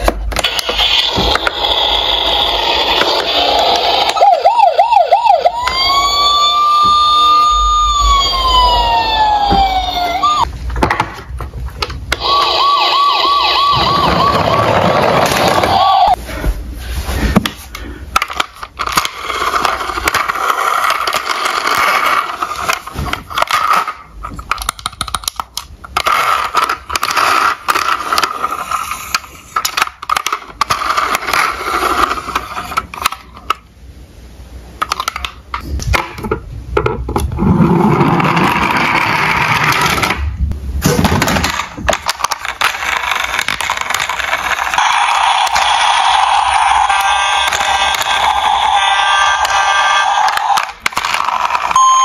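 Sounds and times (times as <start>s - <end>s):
plastic toys clattering and scraping: 0.0s - 4.2s, 10.4s - 12.6s, 13.5s - 16.2s, 17.0s - 33.7s, 34.8s - 51.8s.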